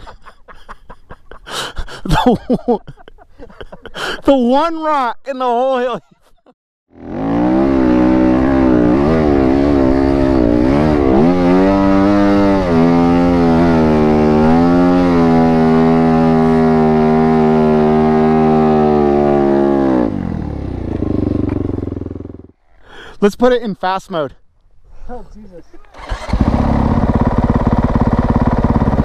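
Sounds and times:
motorcycle engine at full throttle: 6.9 - 22.6, 26.0 - 29.0.

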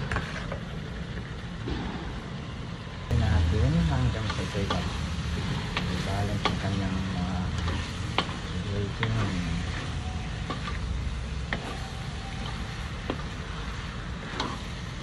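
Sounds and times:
frying sizzle: 3.1 - 15.0
spatula scraping wok: 4.0 - 15.0.

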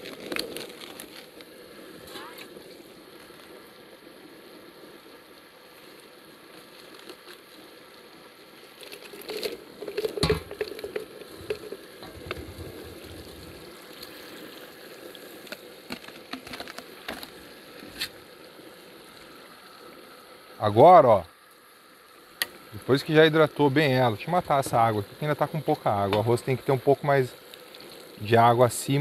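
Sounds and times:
broth bubbling and sizzling: 0.0 - 29.0
sharp knocks and clatter: 10.2 - 10.7.

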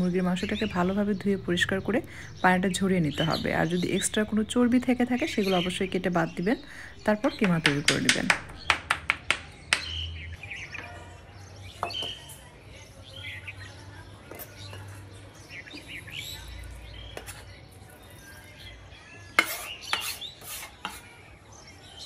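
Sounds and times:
knife scraping wooden board: 19.4 - 21.1.

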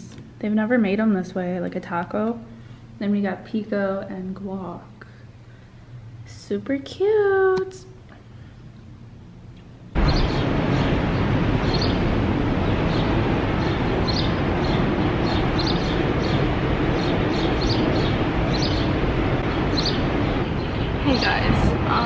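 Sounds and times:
small birds chirping: 10.0 - 12.0, 12.6 - 22.0
wind rushing: 10.0 - 22.0.

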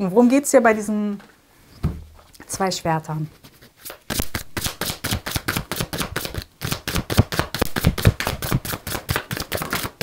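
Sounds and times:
cards shuffling: 3.3 - 10.0.

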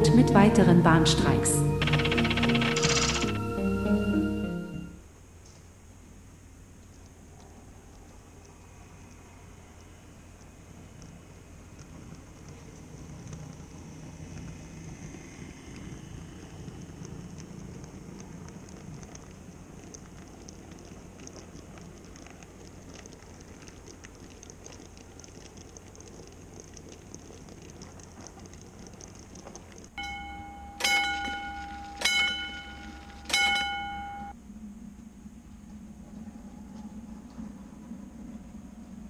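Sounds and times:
steady ringing tone: 1.6 - 4.9, 30.0 - 34.5
model train wheels rattling: 1.8 - 3.4, 30.0 - 34.3
bell-like chime: 30.0 - 34.3.

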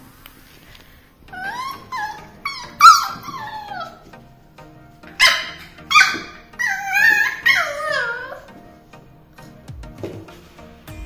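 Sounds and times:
puppy whining: 1.2 - 4.3, 5.0 - 8.8
puppy crying: 1.3 - 4.2, 5.0 - 8.6
puppy yelping: 1.3 - 4.2, 5.0 - 8.6.

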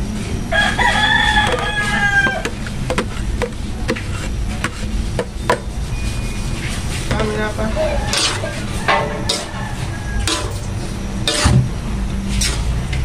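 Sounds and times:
rooster crowing: 0.5 - 2.6, 7.4 - 10.8.

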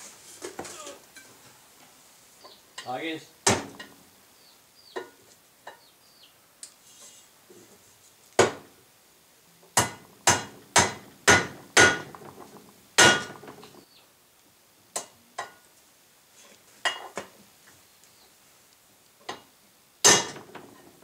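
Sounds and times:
hammer striking metal: 9.8 - 12.1, 13.0 - 13.5.

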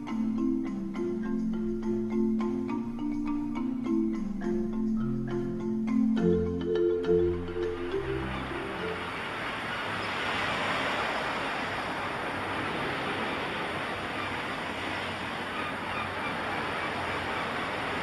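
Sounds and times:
ocean waves washing on shore: 7.3 - 18.0.

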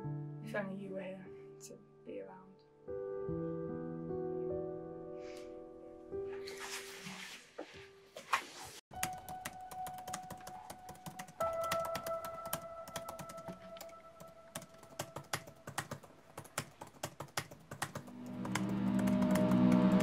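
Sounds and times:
laptop keyboard typing: 8.9 - 20.0.

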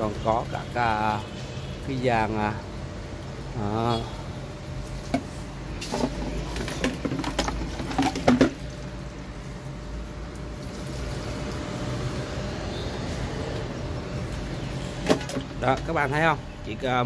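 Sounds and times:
water splashing onto plants: 4.7 - 11.8.

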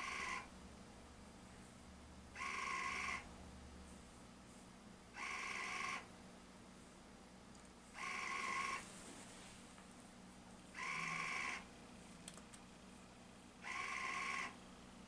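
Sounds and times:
burette drive buzzing: 2.3 - 3.3, 7.9 - 8.8, 10.7 - 12.4, 13.6 - 14.6.

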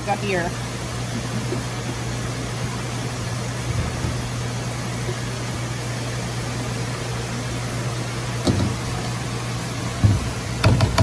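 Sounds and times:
kitchen equipment humming: 0.0 - 11.0
knock: 10.0 - 11.0.

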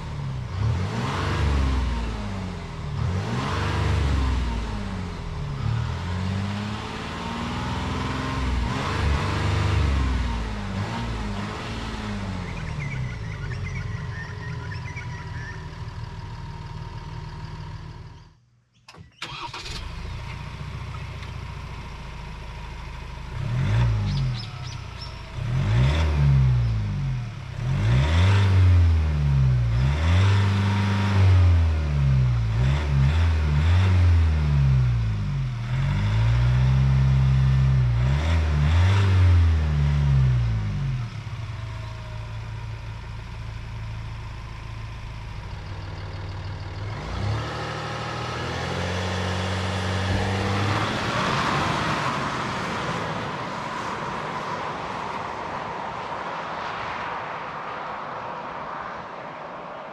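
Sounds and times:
diesel engine revving: 0.0 - 18.3, 19.2 - 54.6
diesel engine idling: 12.2 - 18.3, 41.4 - 48.2.

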